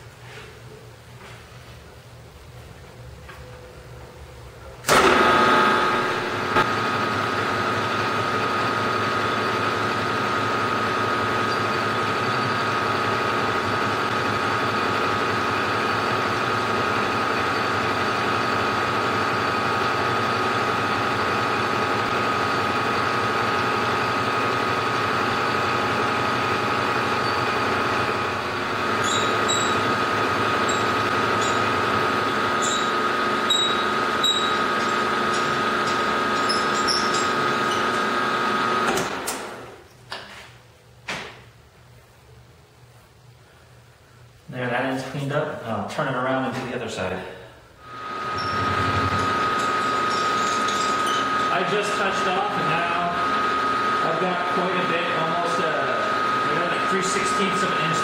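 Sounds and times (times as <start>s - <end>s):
milling machine whining: 4.9s - 39.5s, 47.8s - 58.0s.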